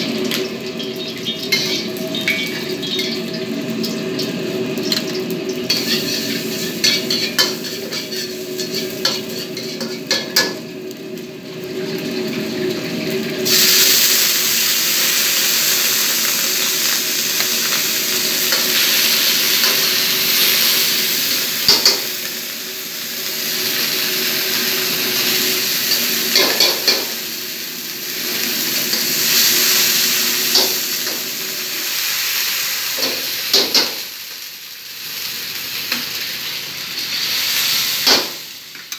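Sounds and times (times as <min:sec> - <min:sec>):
food sizzling in hot oil: 0:00.0 - 0:38.9
gas burner hum: 0:00.0 - 0:38.9.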